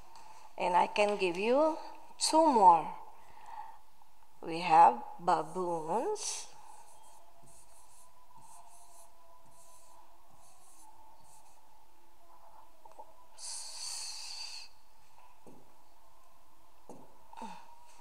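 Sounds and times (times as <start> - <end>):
stylus scratching on screen: 5.4 - 11.7
breath hiss: 13.4 - 14.8.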